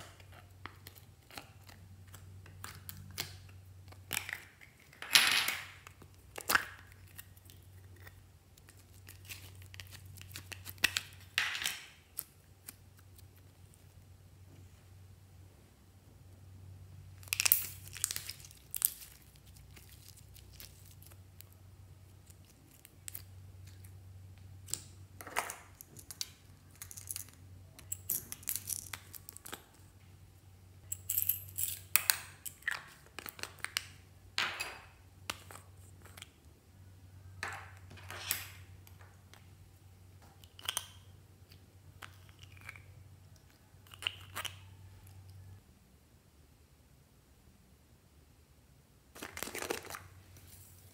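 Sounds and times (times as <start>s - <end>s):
slime and plastic crackling: 0.0s - 14.1s, 17.1s - 30.0s, 49.1s - 50.9s.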